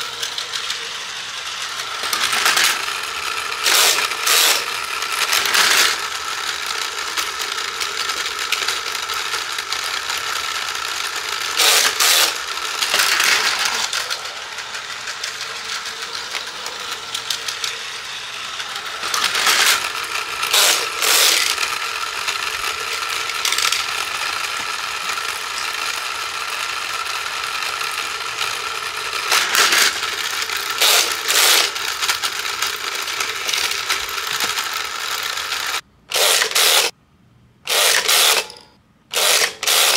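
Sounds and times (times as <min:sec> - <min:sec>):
toy train motor whirring: 0:00.0 - 0:37.0, 0:37.7 - 0:39.9
plastic clacking and rattling: 0:19.0 - 0:25.8.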